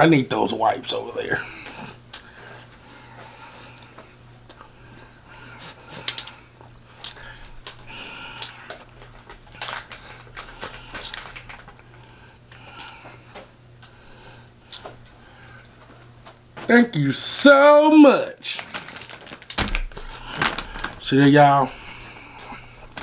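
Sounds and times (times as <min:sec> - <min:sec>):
steady low hum: 0:00.0 - 0:23.0
eating mouth clicks and smacks: 0:05.9 - 0:06.4, 0:07.0 - 0:11.8, 0:14.7 - 0:15.0.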